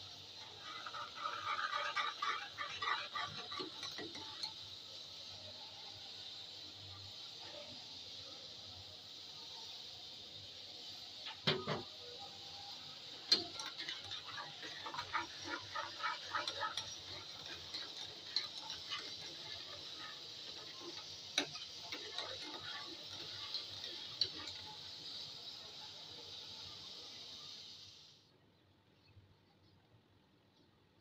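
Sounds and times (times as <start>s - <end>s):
steady hiss: 0.0s - 28.4s
whisk clicking against metal pan: 0.6s - 4.6s, 13.3s - 24.7s.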